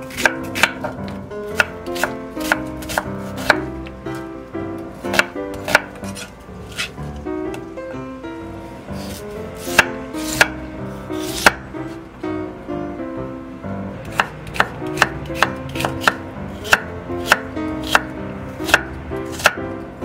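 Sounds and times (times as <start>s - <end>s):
knife slicing carrot on wooden board: 0.1s - 4.3s, 5.0s - 7.0s, 9.0s - 10.6s, 11.2s - 11.6s, 14.1s - 19.6s.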